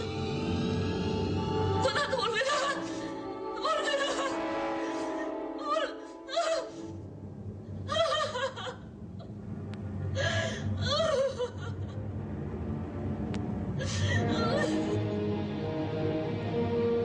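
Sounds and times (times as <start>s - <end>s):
woman sobbing and wailing: 1.7s - 6.9s, 7.8s - 9.3s, 10.1s - 12.0s, 13.8s - 15.2s.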